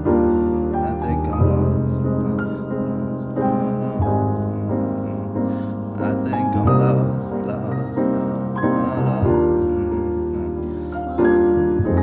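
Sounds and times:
grand piano chords: 0:00.0 - 0:12.0.

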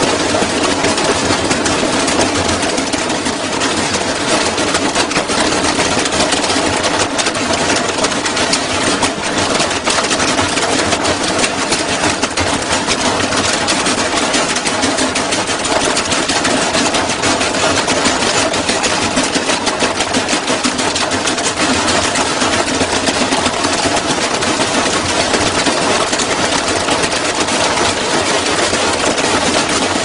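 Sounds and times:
washing machine clattering in spin: 0:00.0 - 0:30.0.

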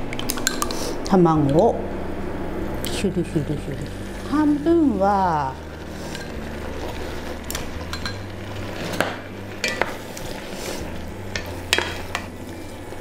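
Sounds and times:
food sizzling in a pot: 0:02.0 - 0:13.0
wooden spatula stirring: 0:05.4 - 0:13.0.

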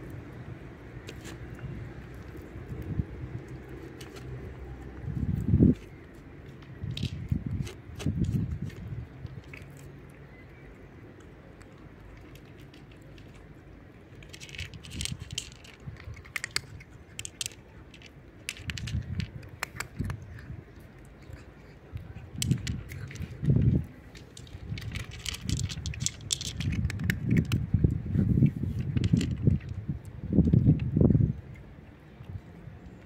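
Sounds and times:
cat chewing dry kibble: 0:00.0 - 0:32.5.

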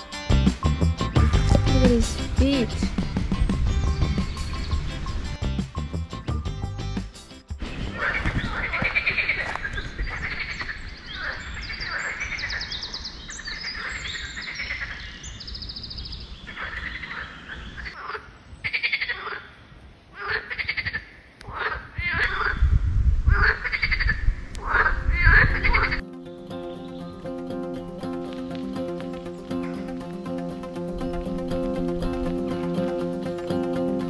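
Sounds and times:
frogs croaking: 0:07.9 - 0:15.6, 0:16.4 - 0:22.7, 0:23.3 - 0:26.0.

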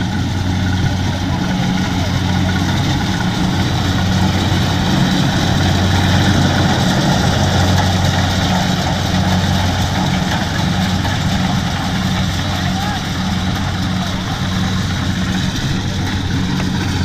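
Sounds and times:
combine harvester engine running: 0:00.0 - 0:17.0.

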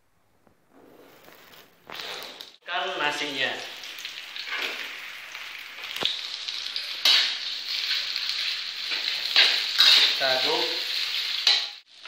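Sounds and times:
rice sizzling in a wok: 0:03.3 - 0:12.0
metal spatula working a pan: 0:07.0 - 0:11.9.

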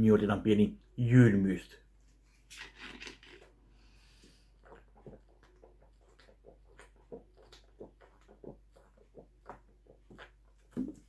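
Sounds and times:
person gulping drink: 0:02.5 - 0:03.6, 0:04.2 - 0:11.0.

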